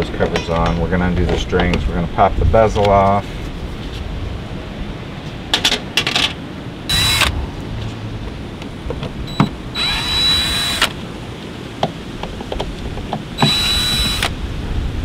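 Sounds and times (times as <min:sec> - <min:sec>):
cordless drill running: 0:06.9 - 0:07.3, 0:09.3 - 0:11.0, 0:13.4 - 0:14.3.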